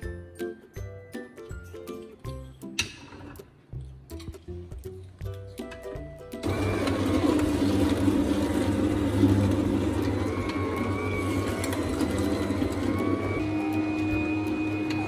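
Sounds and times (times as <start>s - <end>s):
juicer humming: 6.4s - 15.0s.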